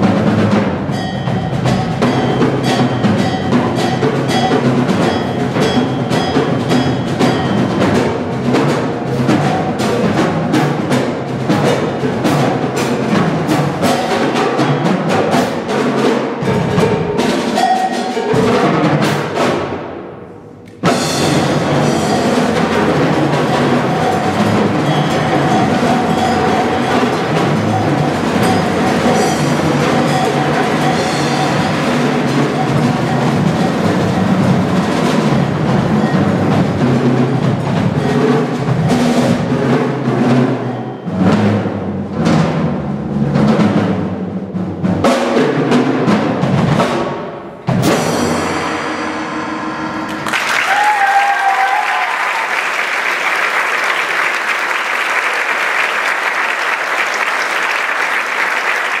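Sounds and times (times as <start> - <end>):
percussion ensemble playing drums: 0.0 - 59.0
audience applause: 50.1 - 59.0.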